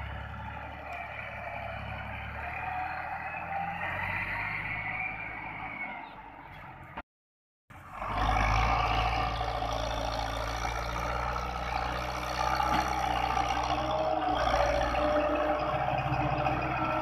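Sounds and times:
tractor diesel engine working hard: 0:00.0 - 0:04.9, 0:07.7 - 0:17.0.

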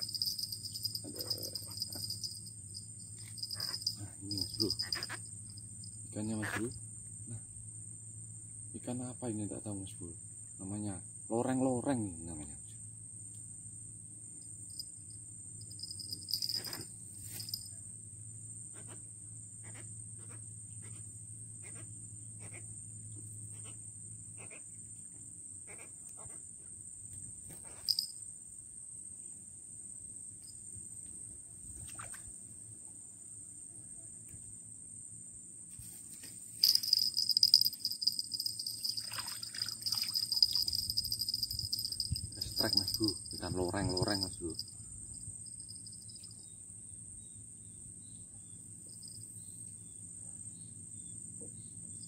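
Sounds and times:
harsh insect buzz: 0:00.0 - 0:06.8, 0:35.8 - 0:43.4
insects chirring: 0:00.0 - 0:52.0.

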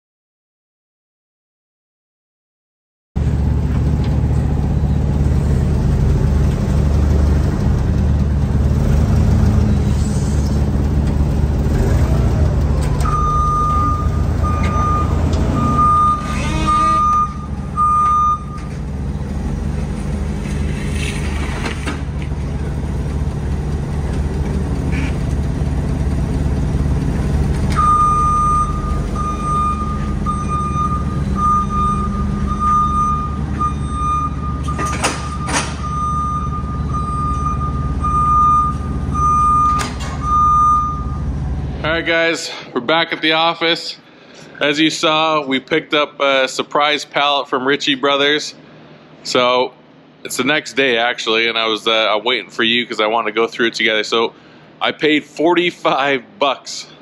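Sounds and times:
engine running: 0:03.2 - 0:42.3
reversing alarm beeping: 0:13.0 - 0:18.9, 0:27.7 - 0:41.4.

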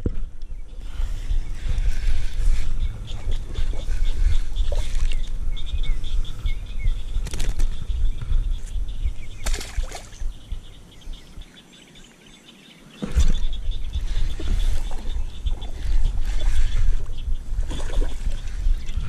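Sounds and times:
birds chirping: 0:00.0 - 0:19.0
wind rumbling on microphone: 0:00.0 - 0:19.0
knocks and rustles handling fish: 0:13.0 - 0:18.6.

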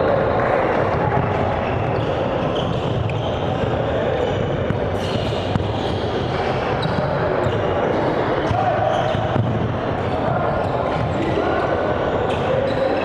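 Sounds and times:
faint voices: 0:00.0 - 0:13.0
basketball bouncing on wood floor: 0:09.4 - 0:09.7.

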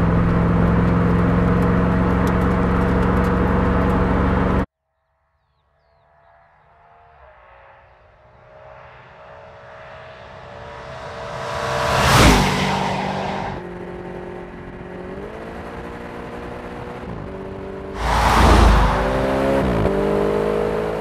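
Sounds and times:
car engine passing by: 0:06.5 - 0:13.6, 0:17.9 - 0:20.8.

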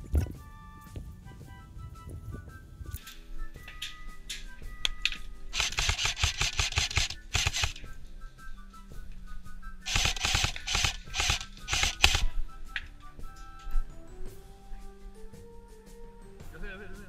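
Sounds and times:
faint background music: 0:00.0 - 0:17.0
airsoft rifle firing bursts: 0:05.5 - 0:07.9, 0:09.8 - 0:12.4.

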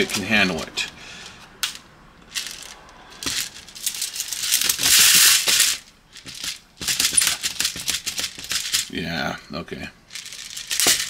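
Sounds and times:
pistol handling clicks and rattles: 0:10.2 - 0:11.0.

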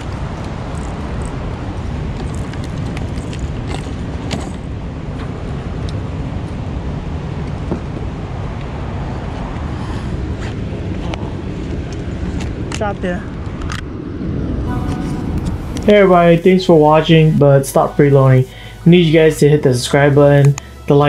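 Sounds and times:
fishing gear clicks and knocks: 0:00.0 - 0:04.7
low rumble: 0:00.0 - 0:21.0.

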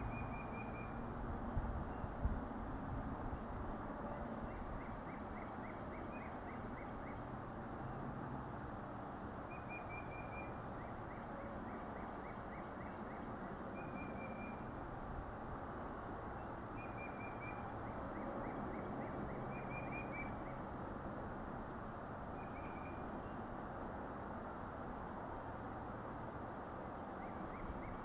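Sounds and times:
songbirds chirping: 0:00.0 - 0:01.1, 0:03.4 - 0:08.1
outdoor background noise: 0:00.0 - 0:28.0.

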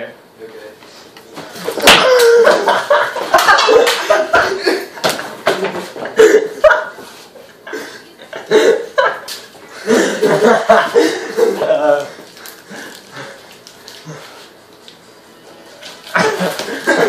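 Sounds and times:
boys laughing loudly: 0:01.8 - 0:12.2, 0:16.1 - 0:17.0.

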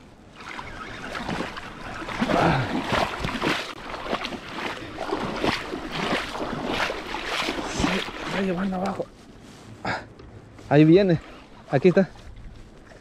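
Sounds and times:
water splashing: 0:00.0 - 0:09.3.

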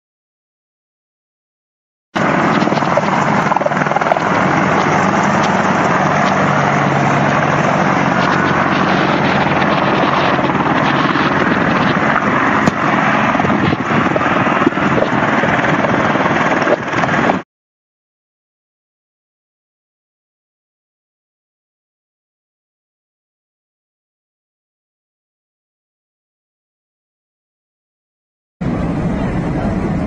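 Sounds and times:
helicopter rotor and engine: 0:02.2 - 0:17.4, 0:28.6 - 0:30.0.

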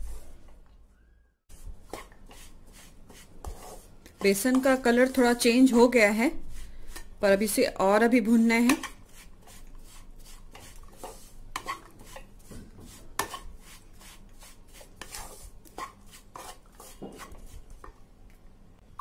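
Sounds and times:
spatula scraping and knocking pan: 0:01.6 - 0:05.9, 0:08.6 - 0:18.0.

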